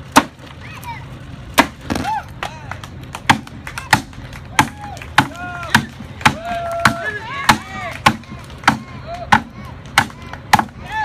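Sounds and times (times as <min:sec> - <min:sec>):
knife chopping wood: 0:00.1 - 0:00.4, 0:01.6 - 0:02.0, 0:03.3 - 0:10.7
voices calling out: 0:00.4 - 0:11.0.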